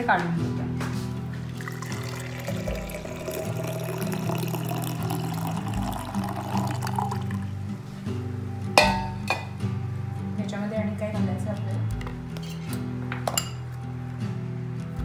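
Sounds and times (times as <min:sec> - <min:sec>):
background music: 0:00.0 - 0:15.0
juice pouring into jar: 0:01.4 - 0:07.6.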